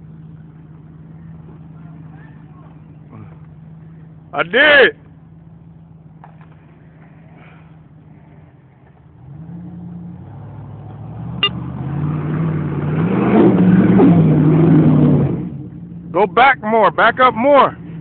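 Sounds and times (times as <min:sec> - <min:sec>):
car engine idling and revving: 0:00.0 - 0:18.0.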